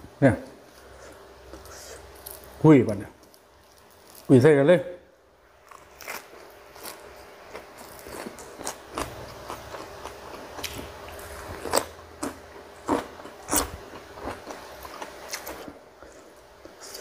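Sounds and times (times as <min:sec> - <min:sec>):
crisp crunching: 0:03.2 - 0:04.4.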